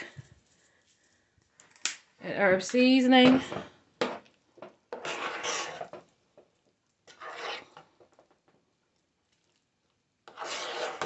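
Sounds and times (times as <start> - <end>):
spoon stirring mashed potatoes: 3.4 - 11.0.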